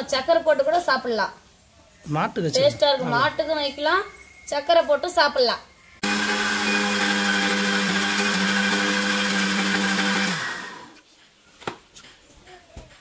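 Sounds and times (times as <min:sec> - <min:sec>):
mixer grinder running: 0:06.0 - 0:11.0.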